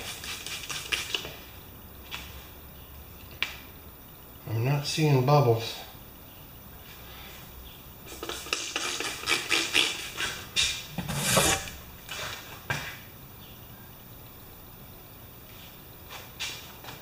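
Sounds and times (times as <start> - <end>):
brush scrubbing tire: 11.0 - 11.8.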